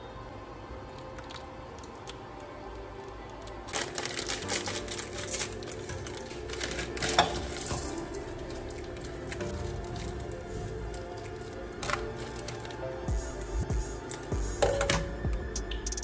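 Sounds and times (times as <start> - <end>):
soft background music: 0.0 - 16.0
plastic packaging crinkling: 3.3 - 14.9.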